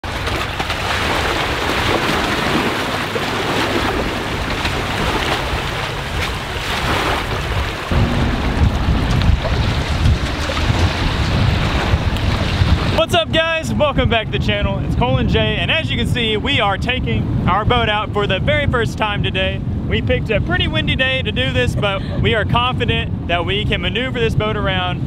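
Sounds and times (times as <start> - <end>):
small waves lapping shore: 0.0 - 13.0
wind buffeting microphone: 0.0 - 25.0.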